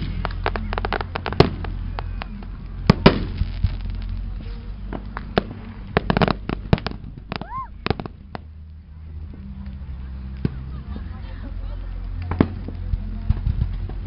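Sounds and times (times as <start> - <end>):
fireworks bangs and pops: 0.0 - 8.6, 12.2 - 14.0
fireworks crackling: 0.0 - 14.0.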